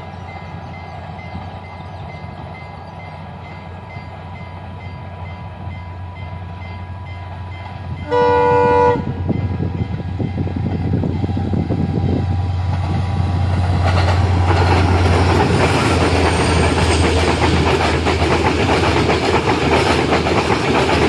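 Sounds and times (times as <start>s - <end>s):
diesel locomotive rumble: 0.0s - 21.0s
train horn blast: 8.0s - 9.5s.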